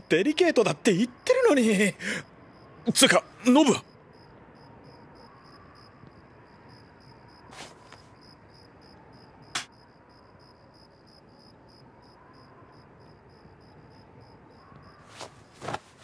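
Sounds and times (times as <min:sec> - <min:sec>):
cloth swishes: 0:07.5 - 0:08.0, 0:15.1 - 0:16.0.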